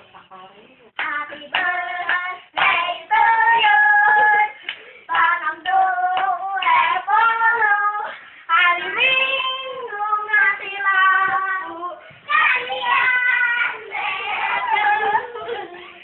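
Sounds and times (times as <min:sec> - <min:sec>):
hands clapping: 0:01.0 - 0:02.8, 0:04.6 - 0:06.8
children singing: 0:05.2 - 0:16.0.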